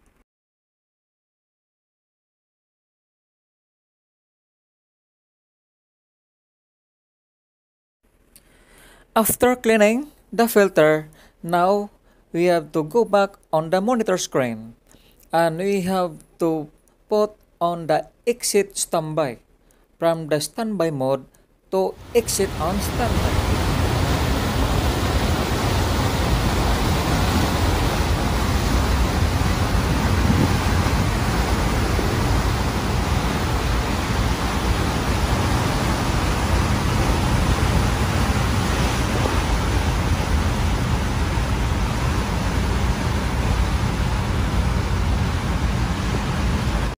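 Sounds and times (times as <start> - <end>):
heavy low rumble: 22.0 - 46.9
rushing sea water in wake: 22.0 - 47.0.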